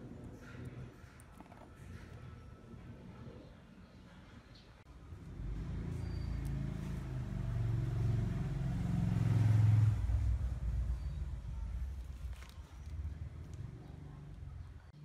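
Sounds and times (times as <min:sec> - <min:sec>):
vehicle engine passing by: 0:04.9 - 0:14.6.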